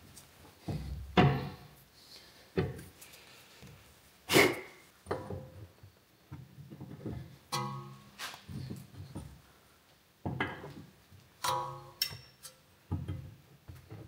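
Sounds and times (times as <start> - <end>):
metal tools clinking and knocking: 11.4 - 12.6.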